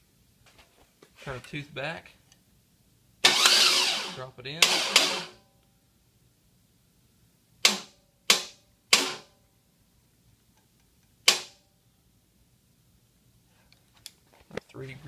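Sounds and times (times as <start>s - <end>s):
sharp metallic clanks: 4.6s - 5.4s.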